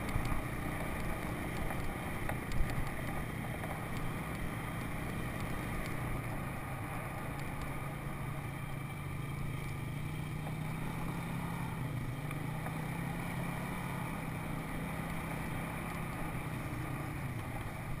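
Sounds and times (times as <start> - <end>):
atv engine droning: 0.0 - 18.0.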